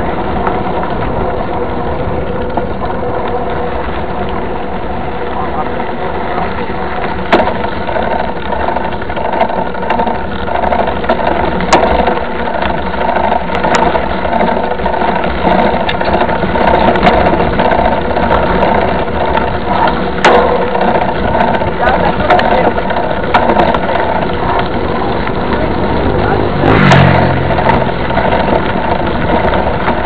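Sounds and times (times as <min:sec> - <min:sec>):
bike knocking over bumps: 0:00.0 - 0:30.0
bike rattling: 0:00.0 - 0:30.0
tyre rumble on dirt: 0:06.6 - 0:30.0.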